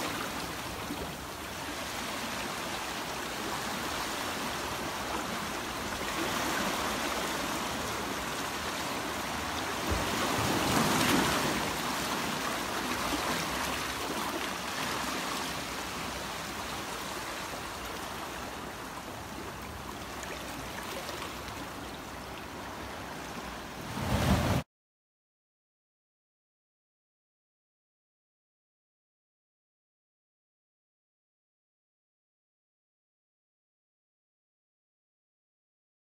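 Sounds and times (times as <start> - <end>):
seawater surging between rocks: 0.0 - 19.1.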